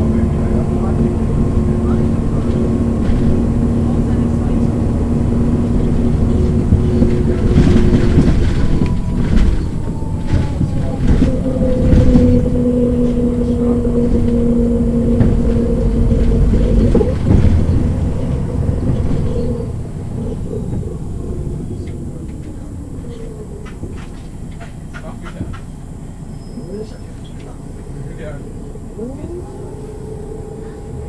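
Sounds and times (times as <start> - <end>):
bus engine with drivetrain whine: 0.0 - 31.0
rattles and knocks: 5.1 - 25.9.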